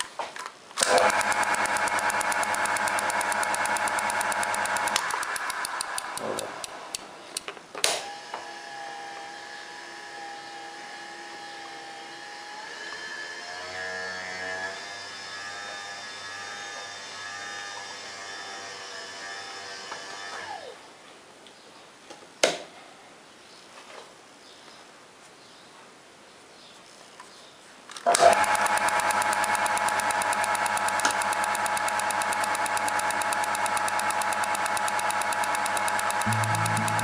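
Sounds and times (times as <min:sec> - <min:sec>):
falling whine and ticking: 0:00.8 - 0:07.5, 0:28.2 - 0:37.0
sharp click: 0:00.8 - 0:08.0, 0:28.1 - 0:37.0
lathe spindle running: 0:00.9 - 0:06.7, 0:28.2 - 0:37.0
faint steady whine: 0:28.2 - 0:37.0.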